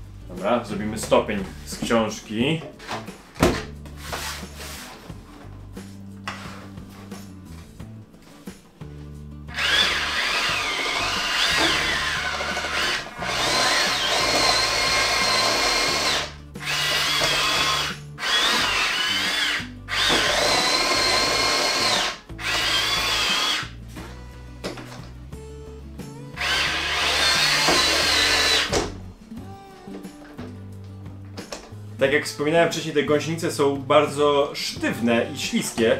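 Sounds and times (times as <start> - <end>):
background music: 0.0 - 35.9
toy electric motors whining: 9.5 - 23.7, 26.4 - 28.7.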